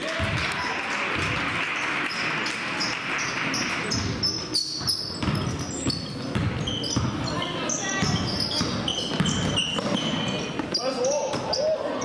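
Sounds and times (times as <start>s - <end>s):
crowd noise: 0.0s - 12.0s
basketball bouncing: 0.2s - 1.4s, 2.4s - 10.7s
sneakers squeaking on gym floor: 2.1s - 12.0s.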